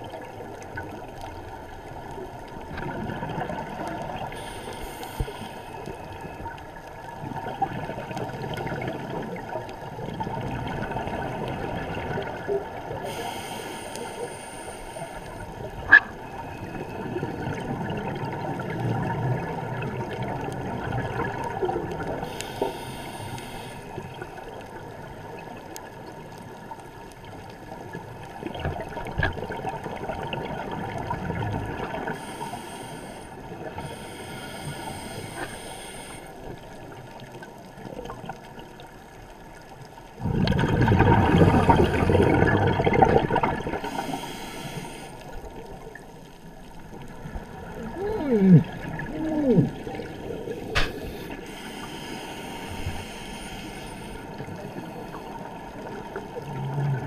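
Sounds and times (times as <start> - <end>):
rush of water: 0.0 - 57.0
muffled underwater gurgling: 40.1 - 57.0.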